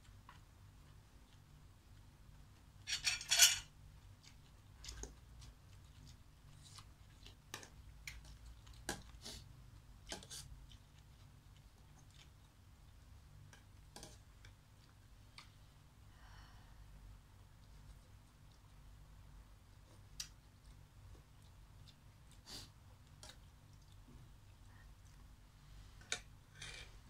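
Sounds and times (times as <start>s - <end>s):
cutlery clinking against metal pot: 2.9s - 3.7s.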